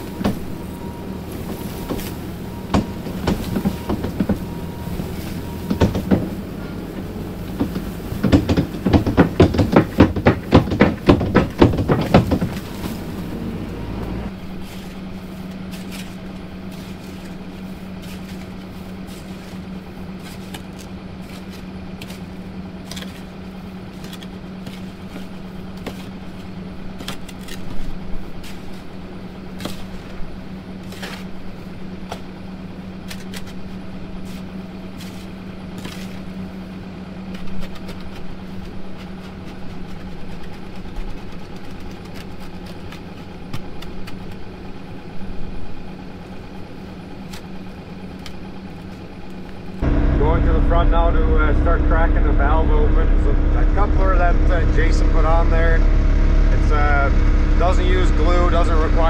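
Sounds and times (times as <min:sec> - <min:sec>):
knocks and scrapes: 0:00.0 - 0:15.0, 0:49.8 - 0:59.0
engine idling hum: 0:00.0 - 0:59.0.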